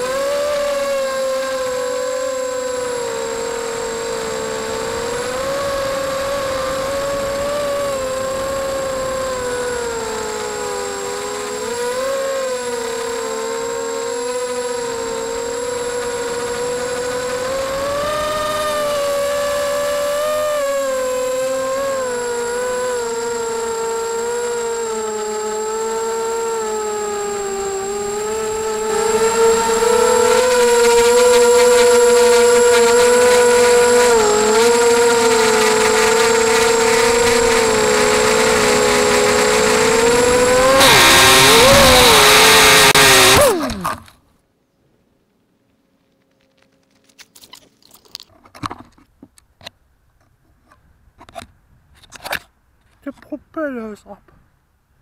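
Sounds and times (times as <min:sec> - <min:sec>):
quadcopter motors whining: 0:00.0 - 0:44.2.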